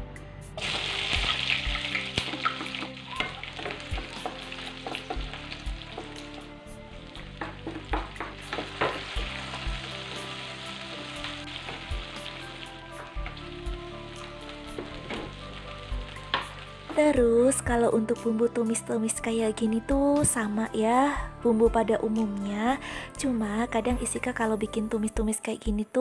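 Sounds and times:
food sizzling in hot oil: 0.6s - 17.8s
wooden spatula scraping a pan: 2.2s - 12.6s.

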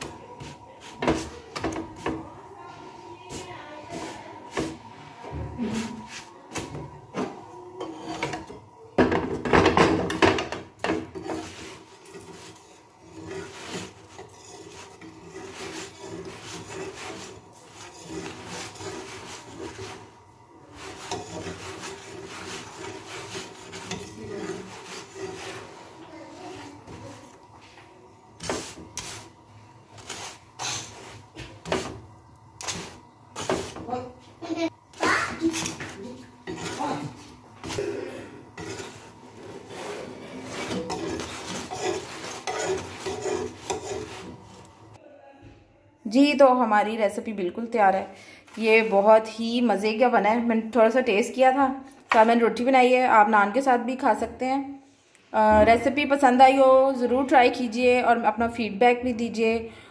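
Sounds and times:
spatula scraping on iron griddle: 0.0s - 34.1s, 34.9s - 45.0s.

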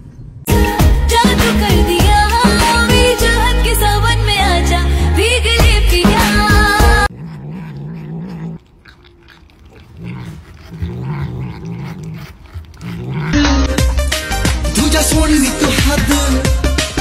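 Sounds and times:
cat growling: 6.8s - 14.0s
cat licking and chewing: 7.0s - 14.1s.

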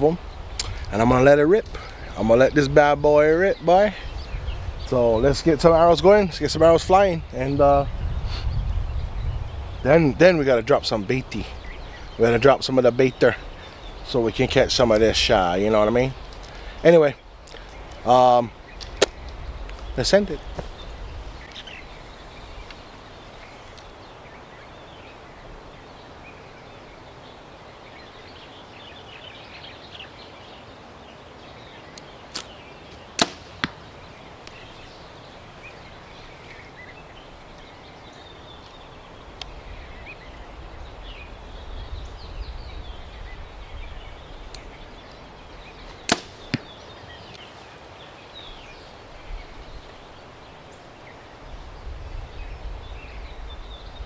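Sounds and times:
bow string snapping: 0.6s - 0.9s, 18.8s - 19.8s, 31.9s - 32.5s, 33.2s - 33.8s, 45.9s - 47.4s
arrow impact knock: 33.2s - 33.8s, 46.1s - 46.7s.

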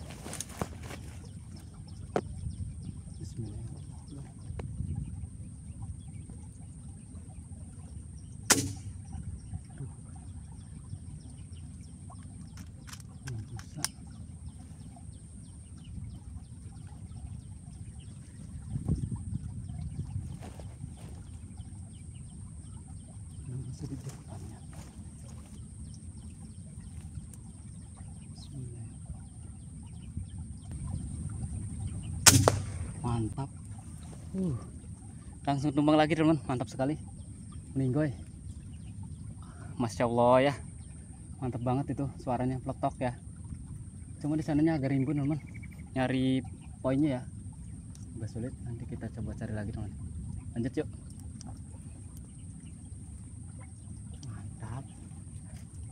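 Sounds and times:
low rumble: 0.0s - 35.7s
faint bird calls: 0.0s - 55.9s
air rifle shot: 8.5s - 8.9s, 32.2s - 33.1s.

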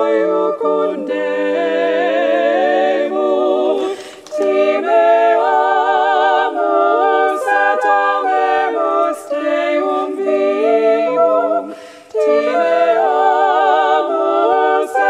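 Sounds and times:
voices singing a hymn in harmony: 0.0s - 15.0s
breaths between phrases: 11.7s - 12.1s.

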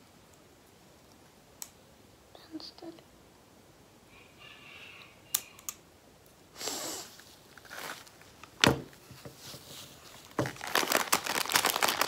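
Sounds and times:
hand rummaging in cloth sack: 9.4s - 12.0s.

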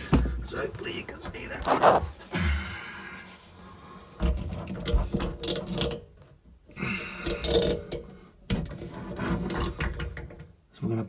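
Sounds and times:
handling clicks and metallic rattles: 4.3s - 6.2s.

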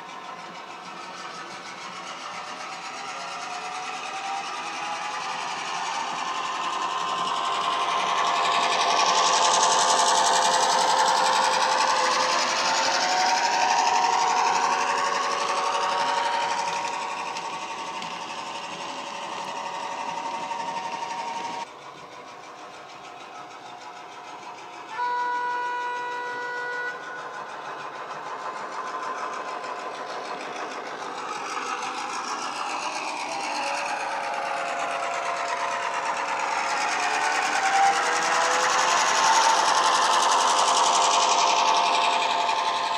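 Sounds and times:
model diesel engine sound: 0.0s - 42.9s
model train running noise: 0.0s - 42.9s
train horn: 24.9s - 27.1s.

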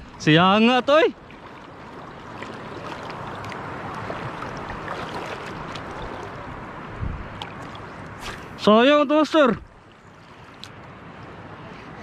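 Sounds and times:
shallow sea water lapping: 0.0s - 8.8s, 9.4s - 11.4s.

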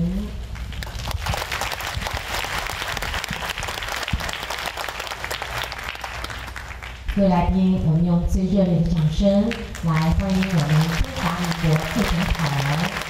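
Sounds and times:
audience applauding: 0.7s - 7.2s, 9.7s - 13.0s.

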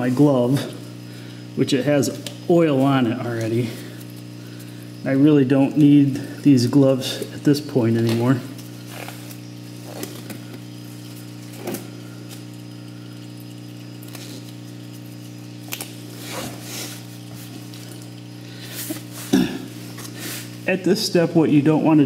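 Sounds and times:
low electrical hum: 0.0s - 22.0s
gloves rustling as pulled off: 15.7s - 20.6s.

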